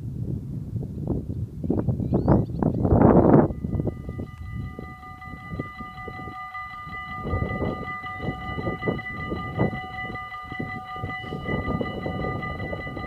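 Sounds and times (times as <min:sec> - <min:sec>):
level crossing bells ringing: 0:03.2 - 0:13.0.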